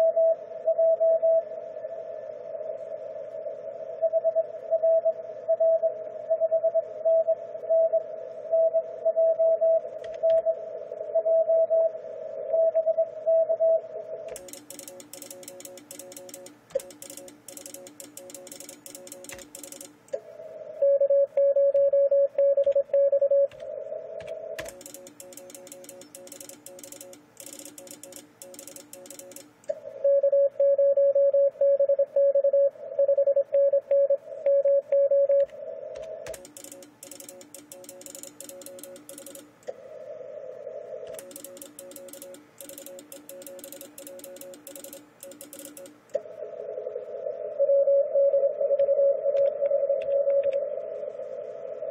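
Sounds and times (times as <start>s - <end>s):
quieter morse code tones: 0.0s - 1.5s, 12.5s - 20.0s, 20.8s - 35.5s, 36.3s - 39.6s, 41.1s - 46.0s, 47.6s - 50.6s
computer keyboard clicking: 10.0s - 10.4s, 14.3s - 20.2s, 23.5s - 29.7s, 36.0s - 39.5s, 41.1s - 46.2s
loud morse code tone: 14.3s - 19.9s, 24.6s - 29.5s, 41.2s - 46.0s.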